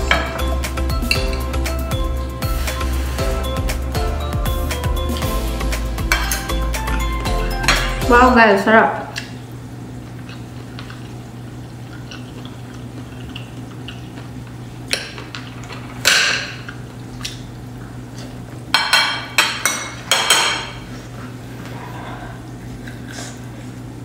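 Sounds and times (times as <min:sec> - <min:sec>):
cutlery clinking on plate: 0:06.1 - 0:06.6.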